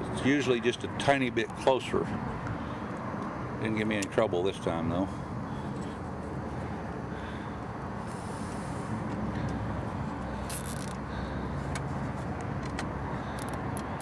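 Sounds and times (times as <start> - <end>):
low mechanical hum: 0.0 - 14.0
zip tie ratcheting rasp: 10.4 - 11.0, 13.2 - 14.0.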